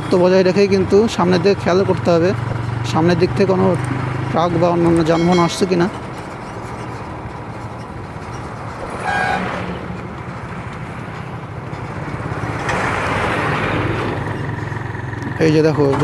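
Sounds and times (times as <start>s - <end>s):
motorcycle engine: 0.0s - 16.0s
road noise: 0.0s - 16.0s
vehicle horn toot: 5.0s - 5.8s, 9.0s - 9.6s.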